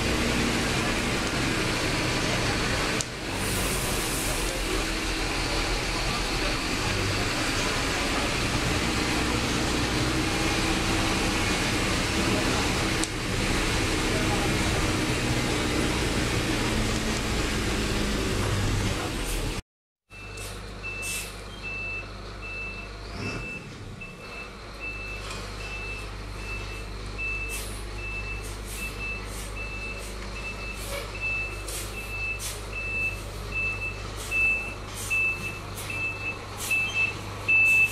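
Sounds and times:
bus cab noise: 0:00.0 - 0:19.6, 0:20.2 - 0:37.9
reversing alarm beeps: 0:20.1 - 0:37.9.

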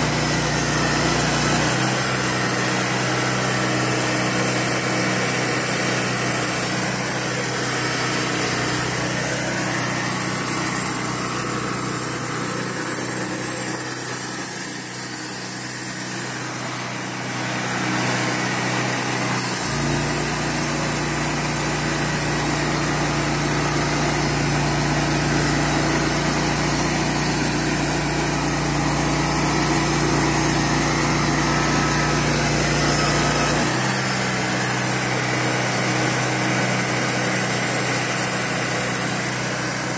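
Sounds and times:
band blade sawing wood: 0:00.0 - 0:39.0
sawmill engine running: 0:00.0 - 0:39.9.

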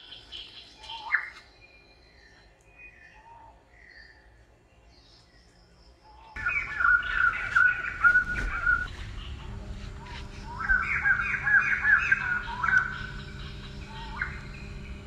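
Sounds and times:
high chirping animal calls: 0:06.3 - 0:15.0.

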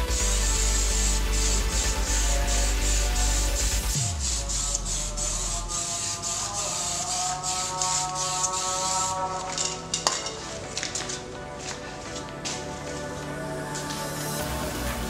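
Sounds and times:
spray can hissing in bursts: 0:00.0 - 0:10.1, 0:13.9 - 0:15.0.

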